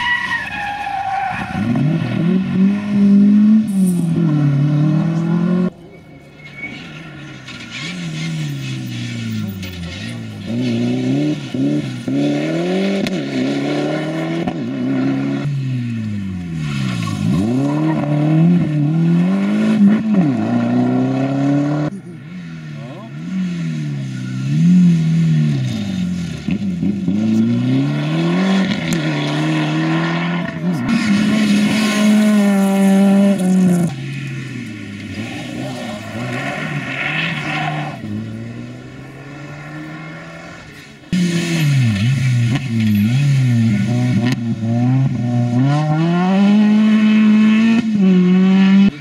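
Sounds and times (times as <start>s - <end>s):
rally car engines revving hard: 1.4s - 5.8s, 6.6s - 49.0s.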